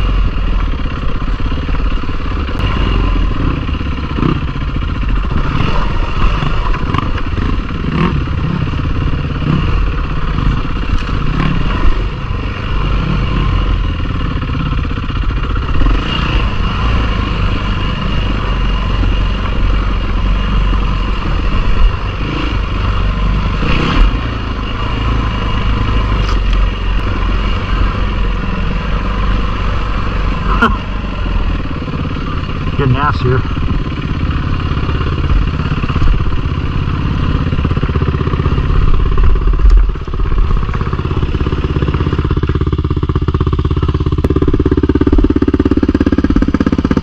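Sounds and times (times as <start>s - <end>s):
dirt bike engine: 0.0s - 47.0s.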